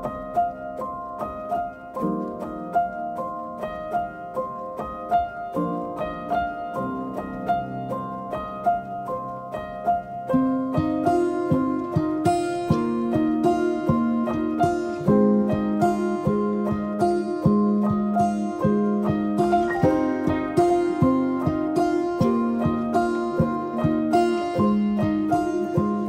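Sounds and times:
plucked harp-like music: 0:11.0 - 0:26.0.

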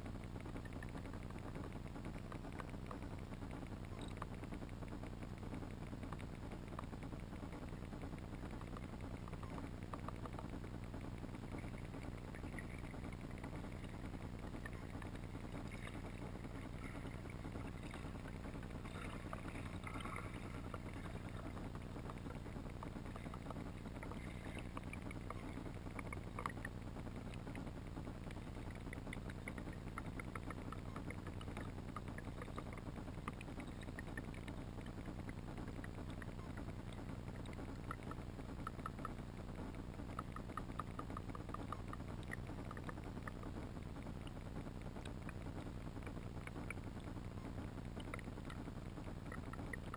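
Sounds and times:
faint ticks: 0:00.0 - 0:49.9
muffled underwater hum: 0:00.0 - 0:49.9.

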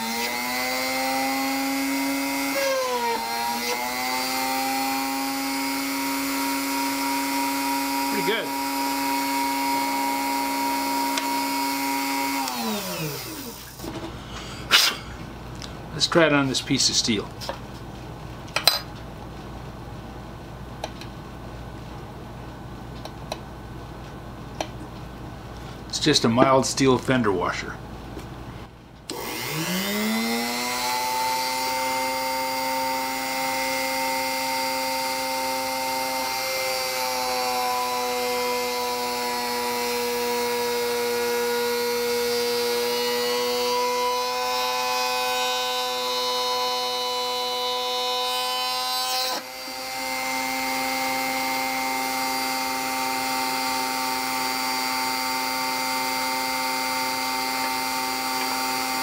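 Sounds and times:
rotary tool drilling into steel: 0:00.0 - 0:13.8, 0:29.1 - 0:59.0.

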